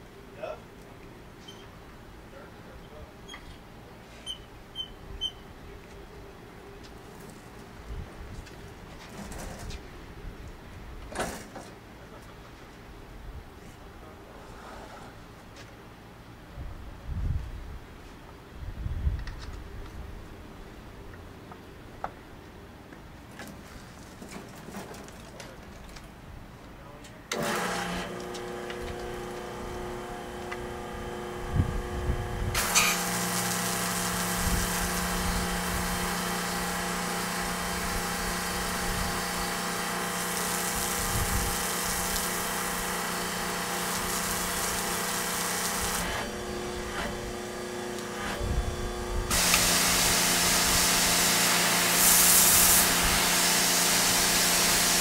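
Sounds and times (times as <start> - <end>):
pressure washer motor humming: 27.3 - 55.0
water jet spraying on concrete: 27.4 - 55.0.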